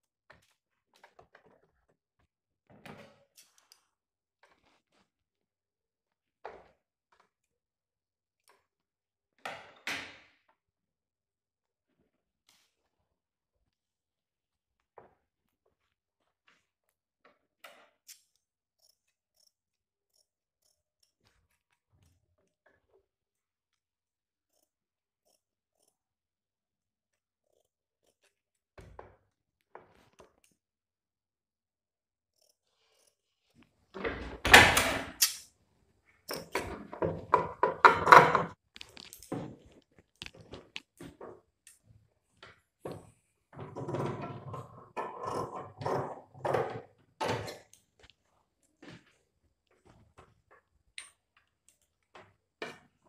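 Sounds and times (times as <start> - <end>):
shears cutting fabric: 23.7 - 29.0, 32.3 - 34.0
shear blade clicks and snips: 35.2 - 35.5.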